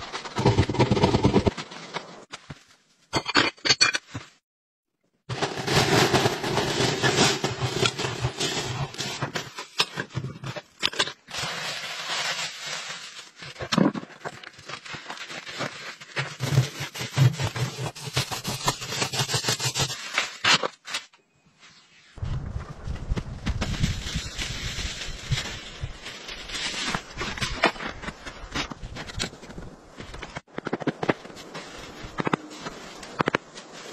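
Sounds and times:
plastic bag rustling: 5.3 - 9.7, 11.2 - 18.5, 23.5 - 28.0
ash scraping and crunching: 5.3 - 21.1.

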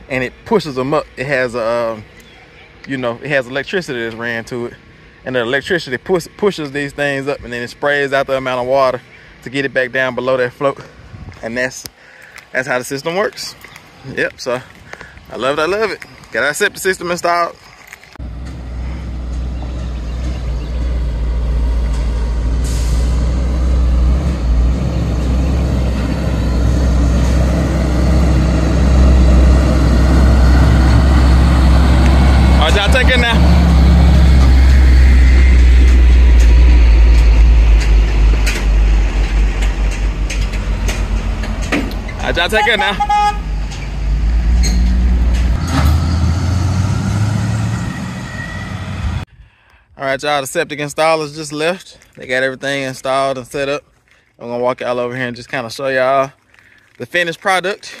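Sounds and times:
truck engine rumbling: 0.0 - 49.4
air brake hiss: 22.5 - 23.3.

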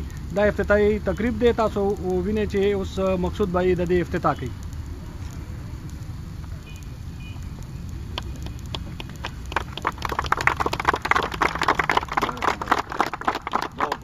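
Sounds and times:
low steady rumble: 0.0 - 14.0
crowd applauding: 8.1 - 14.0.

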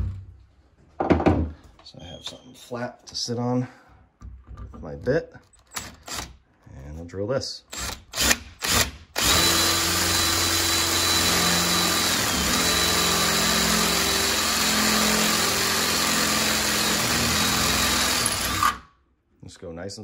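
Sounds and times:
power drill boring through steel: 7.7 - 18.9.

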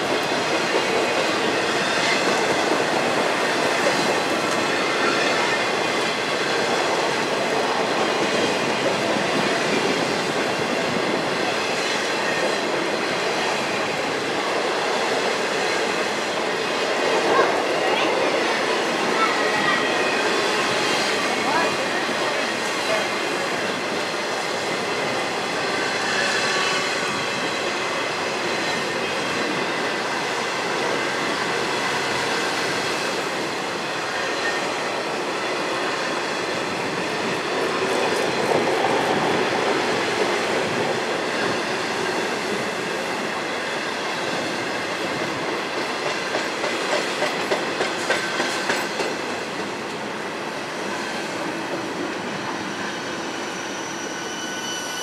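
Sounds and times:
train wheels rumbling on rails: 0.0 - 55.0
high wheel squeal: 52.2 - 55.0.

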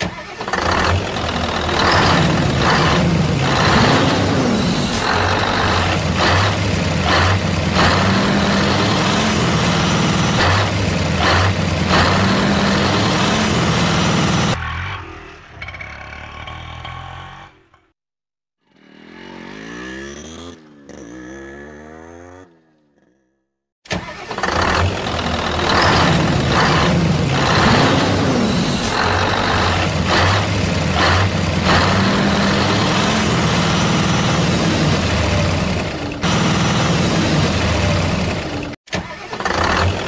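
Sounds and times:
vehicle engine running: 29.0 - 38.8.

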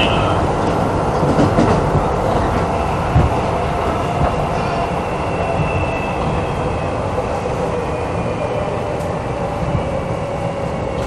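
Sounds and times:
train thumps: 0.0 - 7.0.

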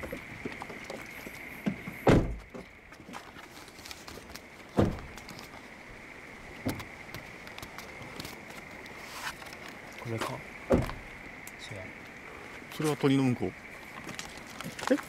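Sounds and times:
dull thumps on car: 1.6 - 2.6, 4.8 - 5.2, 10.7 - 11.0
light clicks and scuffs: 7.2 - 10.4.

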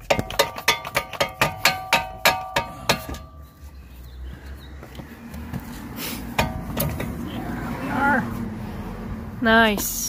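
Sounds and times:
metal clanking: 0.0 - 3.6, 6.3 - 7.3.

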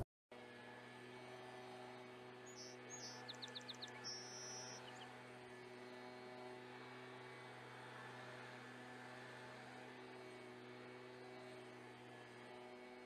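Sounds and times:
song sparrow singing: 2.5 - 5.1.

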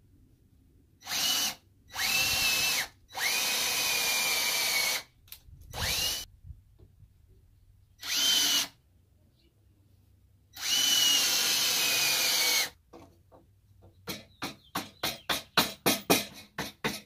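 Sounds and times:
cordless drill driving screws: 1.0 - 5.1, 5.7 - 6.3, 8.0 - 8.8, 10.6 - 12.8.

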